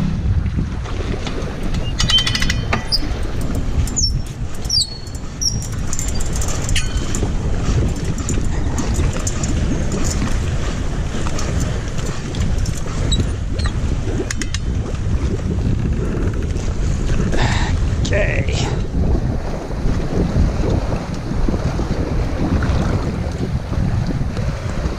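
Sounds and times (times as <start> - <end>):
wind buffeting microphone: 0.0 - 24.9
winch clicking and squeaking: 1.8 - 10.4, 11.6 - 14.6.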